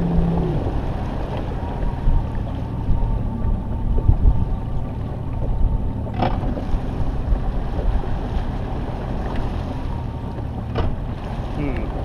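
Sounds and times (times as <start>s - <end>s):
wind rushing on microphone: 0.0s - 8.8s
outboard engine droning: 0.0s - 12.0s.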